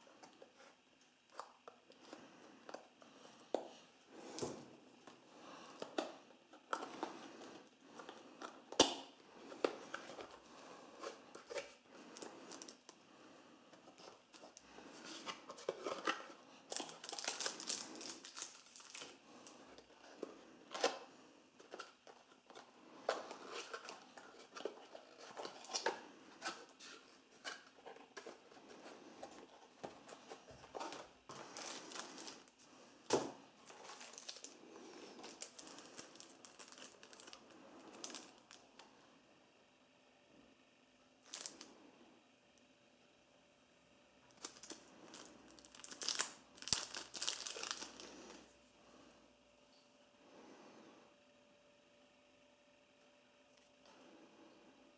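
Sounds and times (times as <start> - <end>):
plastic and cardboard crinkling: 0.0 - 12.9, 13.7 - 38.6, 41.2 - 41.6, 44.3 - 48.5.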